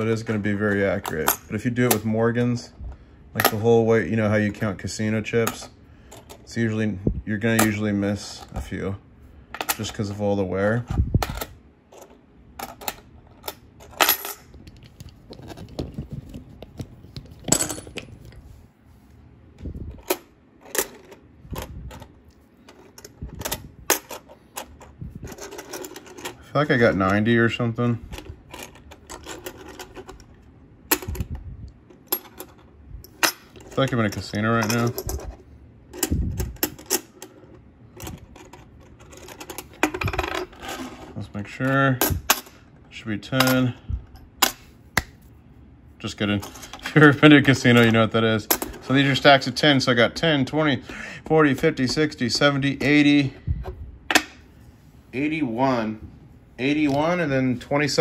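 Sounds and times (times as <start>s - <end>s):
coins clinking on wooden table: 13.9s - 14.4s, 17.5s - 18.1s.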